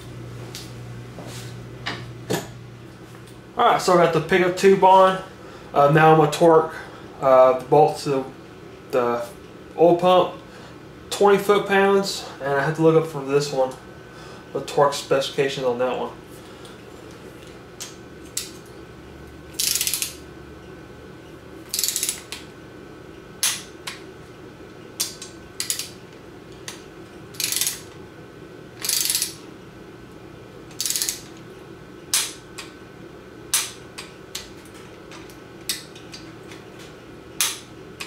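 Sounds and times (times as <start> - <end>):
sharp wrench clicks: 19.6 - 20.2, 21.7 - 22.4, 25.0 - 26.0, 27.4 - 28.0, 28.8 - 29.4, 30.7 - 31.4, 37.4 - 37.6
torque wrench ratcheting: 19.6 - 20.2, 21.7 - 22.4, 25.6 - 25.9, 27.4 - 27.9, 28.8 - 29.4, 30.7 - 31.3.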